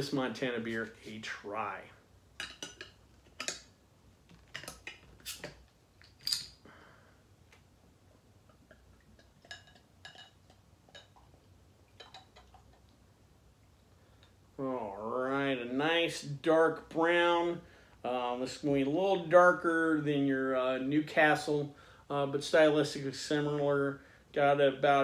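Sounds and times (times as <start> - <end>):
bottle cap and glass clinks: 6.0 - 6.6.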